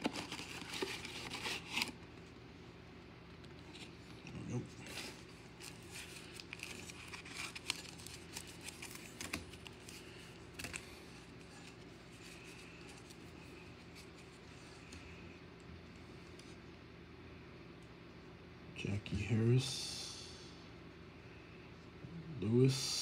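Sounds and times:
cards rustling and clicking: 0.0s - 2.2s, 4.8s - 15.0s
wrappers crinkling: 4.8s - 10.8s.

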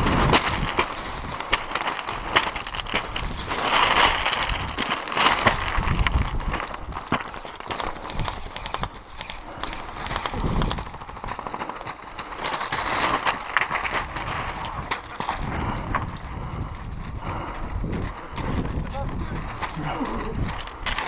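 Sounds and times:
footsteps on gravel: 0.0s - 21.0s
airsoft rifles firing bursts: 7.7s - 11.8s.

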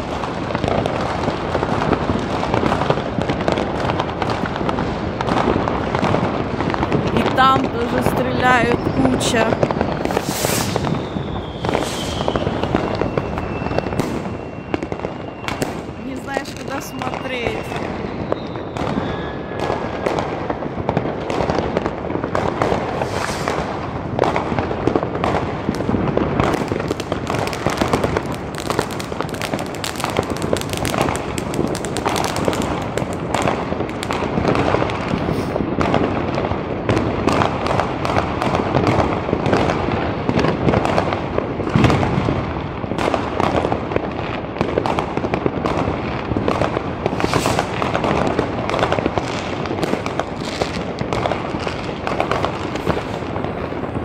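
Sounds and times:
fireworks and firecrackers banging: 0.0s - 54.0s.

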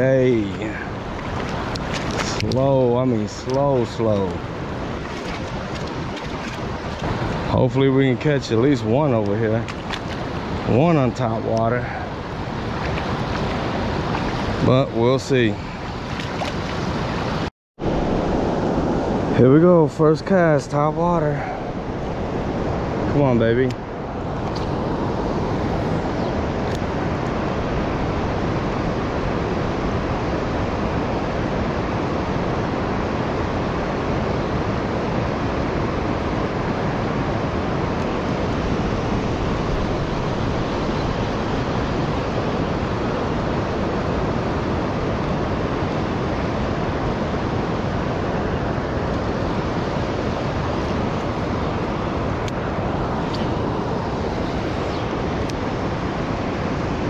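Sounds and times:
river water flowing over rocks: 0.2s - 18.6s.

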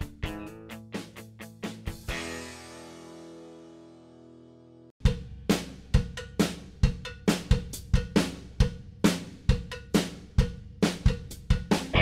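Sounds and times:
drum groove: 5.1s - 12.0s.

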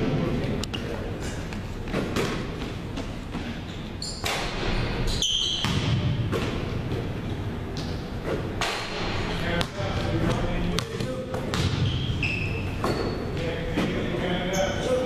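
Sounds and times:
basketball bouncing on hardwood: 10.8s - 11.9s.

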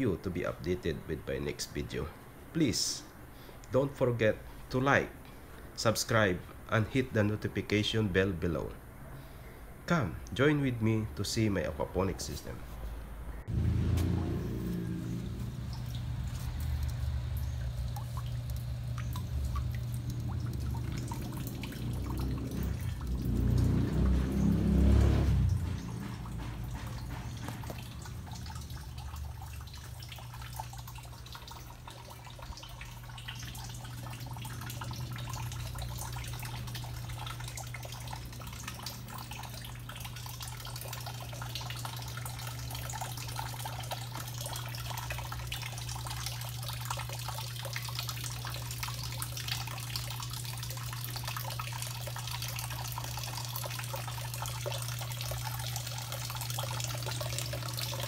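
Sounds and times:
low hum: 12.7s - 30.5s
water trickling and splashing: 13.4s - 58.0s.

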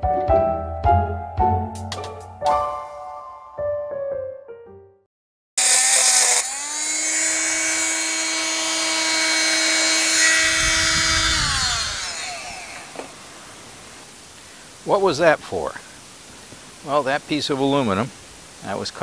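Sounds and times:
power tool cutting aluminum: 5.6s - 13.3s.

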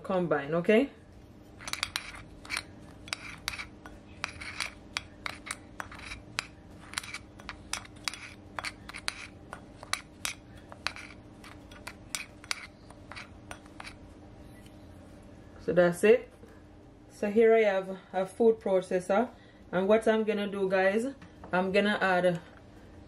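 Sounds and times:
gritty scraping of spices: 1.5s - 14.1s.

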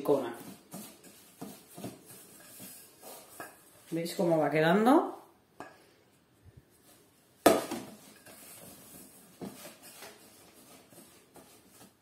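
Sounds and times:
spatula scraping bowl: 0.0s - 4.3s.

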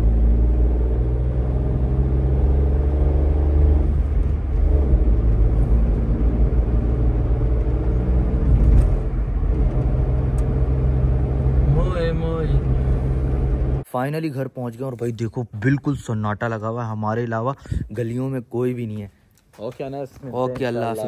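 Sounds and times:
car engine and road noise: 0.0s - 13.9s.

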